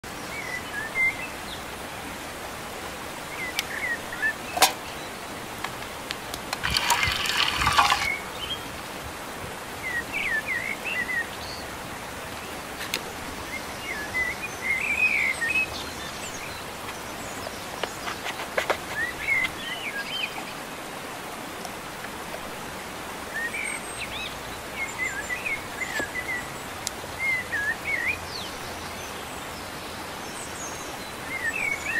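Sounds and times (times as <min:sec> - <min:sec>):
outdoor background hiss: 0:00.0 - 0:31.9
small birds chirping: 0:00.1 - 0:08.9, 0:09.8 - 0:20.7, 0:23.3 - 0:31.9
rough rustling: 0:06.5 - 0:08.2.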